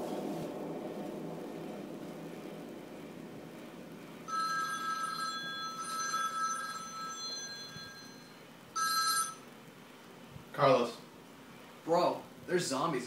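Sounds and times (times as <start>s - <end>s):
electronic telephone ringing: 4.3s - 9.5s.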